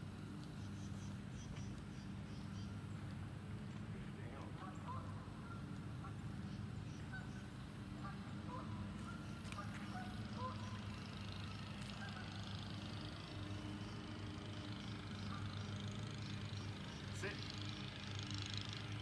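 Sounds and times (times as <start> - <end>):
steady low hum: 0.0 - 19.0
short bird calls: 4.4 - 18.5.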